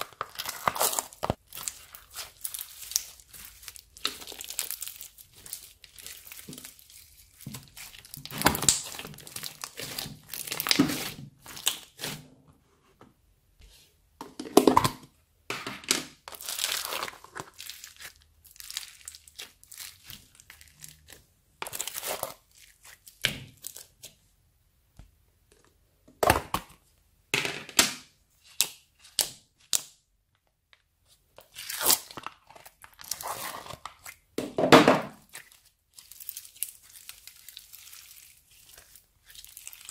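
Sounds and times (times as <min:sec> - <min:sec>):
slime crackling and crunching: 0:00.0 - 0:12.2, 0:16.2 - 0:24.0, 0:31.5 - 0:34.4, 0:35.2 - 0:39.9.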